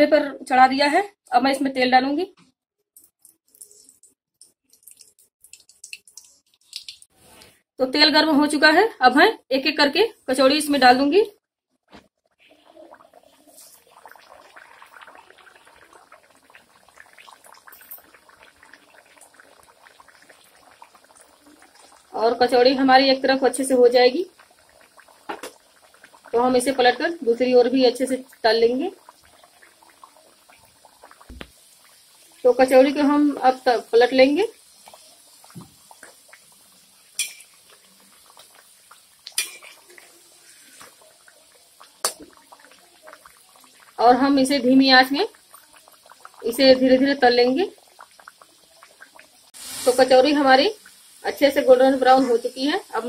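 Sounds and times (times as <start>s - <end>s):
deep-frying sizzle in oil: 12.5s - 53.0s
sharp pop: 31.3s - 31.6s
metal skimmer clinking on pan: 37.2s - 37.5s.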